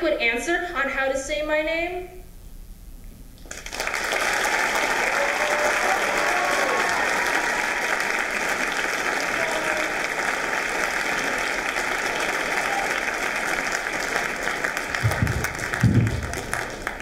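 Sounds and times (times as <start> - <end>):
audience applauding: 3.5 - 17.0
low thump: 15.0 - 16.5.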